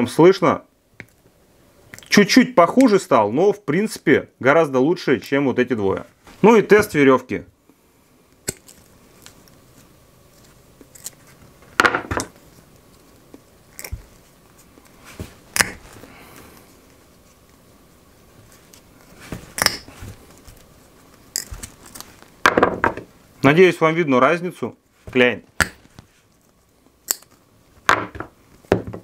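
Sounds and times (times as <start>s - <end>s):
rope rustling in hands: 12.4s - 22.4s.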